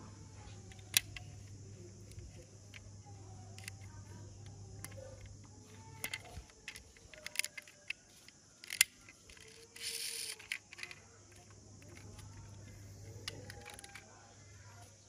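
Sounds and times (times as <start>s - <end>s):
low steady hum: 0.0s - 15.0s
toy cars clicking and tapping: 0.6s - 14.2s.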